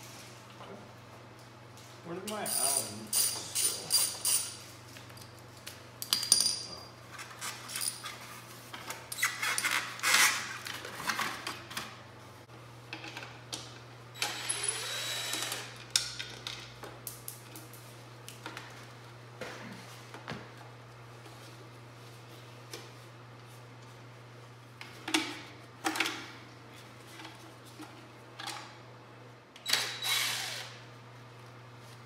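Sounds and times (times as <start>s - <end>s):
tools and metal parts clinking: 6.0s - 8.2s
cordless drill running: 14.2s - 15.8s, 29.7s - 30.8s.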